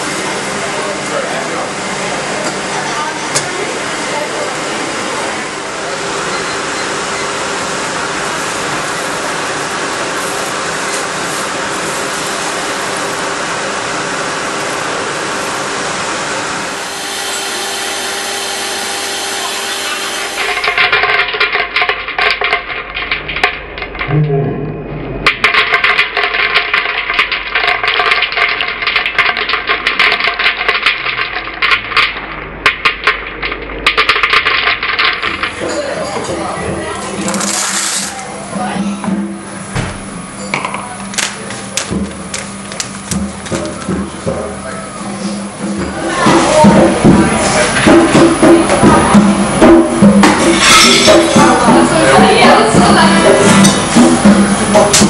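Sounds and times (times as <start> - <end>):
coffee roaster fan rushing: 0.0 - 55.0
coffee beans clattering into metal bowl: 20.4 - 24.0, 25.4 - 36.2, 37.2 - 38.2, 50.2 - 51.6.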